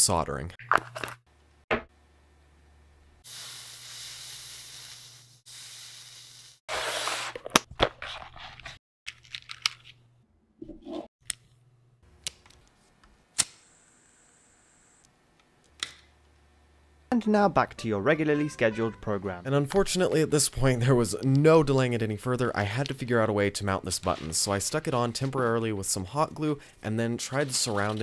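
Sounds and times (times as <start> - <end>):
steady hissing: 3.3 - 6.6
thin gas hiss: 3.3 - 6.6.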